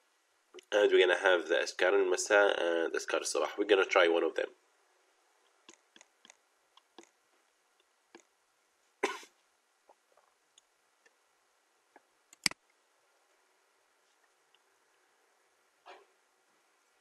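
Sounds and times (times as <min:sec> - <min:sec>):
computer mouse clicks: 0:05.7 - 0:07.1, 0:12.3 - 0:12.6
small desk noises: 0:11.9 - 0:15.1.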